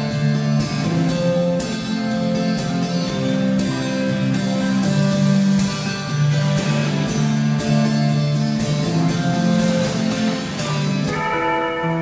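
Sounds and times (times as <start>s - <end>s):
guitar music: 0.0s - 12.0s.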